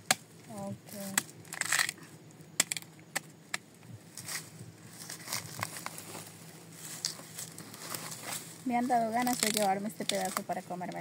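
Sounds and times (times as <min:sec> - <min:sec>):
knife chopping roots: 0:00.0 - 0:00.3, 0:02.6 - 0:03.6.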